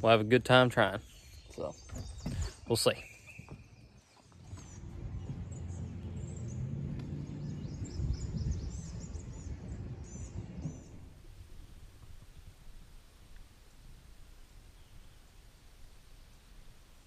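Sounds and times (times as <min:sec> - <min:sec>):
birds chirping: 0:00.0 - 0:17.0
low rumble: 0:04.3 - 0:16.9.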